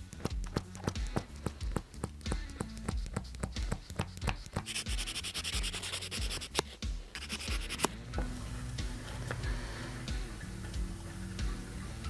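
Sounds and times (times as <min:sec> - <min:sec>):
music with clicking beat: 0:00.0 - 0:12.0
scratchy rubbing noise: 0:04.6 - 0:07.9.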